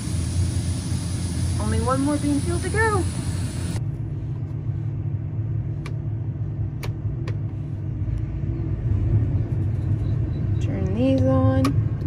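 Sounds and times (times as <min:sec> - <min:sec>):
hiss: 0:00.0 - 0:03.8.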